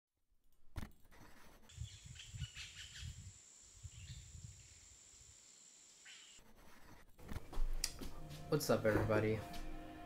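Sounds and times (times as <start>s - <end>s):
bird-like chirps: 1.7s - 5.0s, 6.0s - 6.4s
high insect-like drone: 1.8s - 6.4s.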